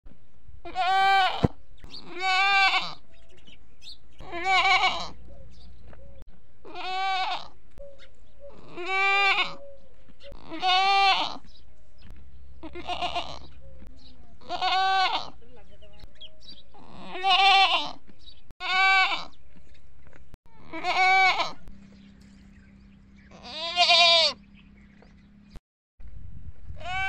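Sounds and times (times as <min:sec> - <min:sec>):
goats bleating: 0:00.6 - 0:03.1, 0:04.2 - 0:05.3, 0:06.6 - 0:07.6, 0:08.5 - 0:09.6, 0:10.3 - 0:11.6, 0:12.6 - 0:13.6, 0:14.4 - 0:15.4, 0:16.7 - 0:18.0, 0:18.6 - 0:19.4, 0:20.5 - 0:21.7, 0:23.3 - 0:24.4.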